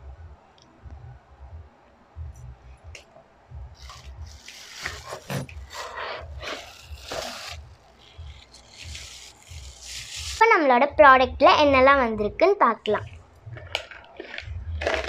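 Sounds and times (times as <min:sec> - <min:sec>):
plastic bag crinkling: 0:04.0 - 0:10.4, 0:13.6 - 0:15.0.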